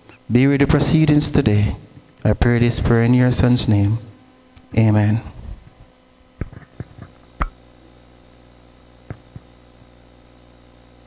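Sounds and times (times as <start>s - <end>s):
electrical hum: 0.0s - 11.0s
microphone handling clicks and knocks: 6.4s - 7.6s.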